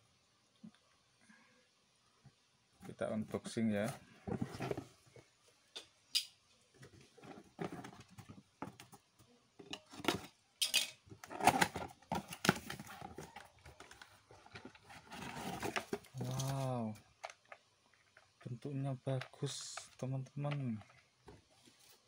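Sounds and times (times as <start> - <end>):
cardboard and plastic rustling: 2.9 - 5.4, 6.7 - 10.4, 11.1 - 18.4.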